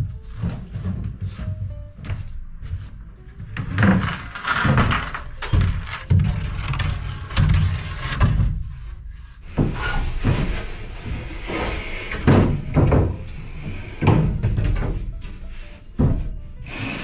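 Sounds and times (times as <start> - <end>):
objects knocking and thumping: 3.6 - 8.8, 9.5 - 15.4, 16.0 - 16.4.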